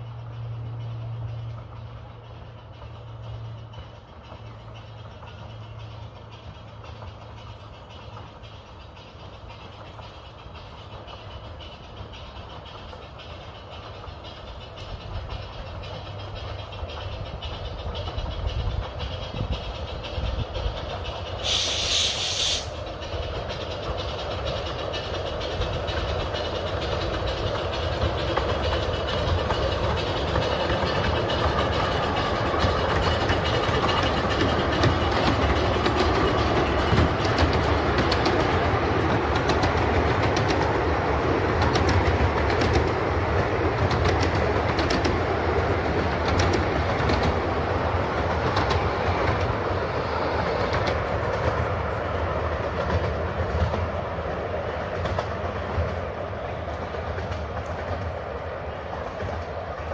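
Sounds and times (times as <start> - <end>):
steam locomotive passing: 0.0 - 59.9
wheels clattering over rail joints: 0.0 - 59.9
high blast of steam: 21.4 - 22.9.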